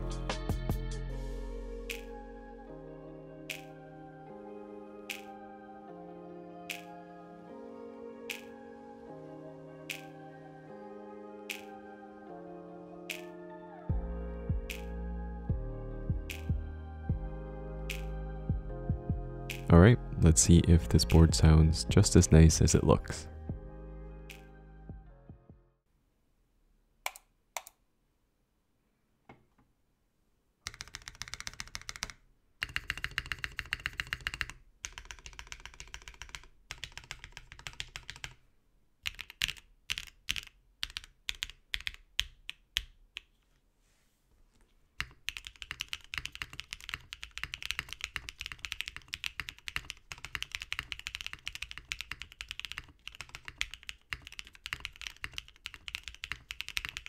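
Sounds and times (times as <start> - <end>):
typing on keyboard: 30.6 - 38.4, 39.0 - 43.3, 45.0 - 57.0.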